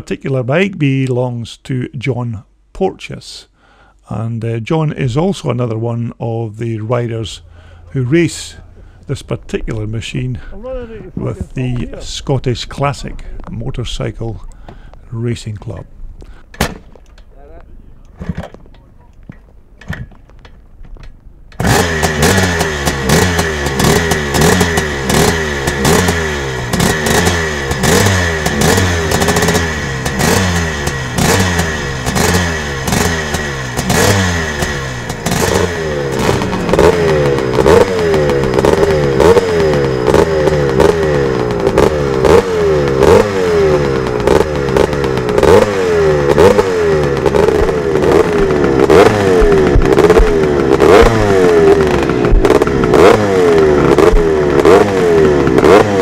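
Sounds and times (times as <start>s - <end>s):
dirt bike engine revving: 21.6s - 56.0s.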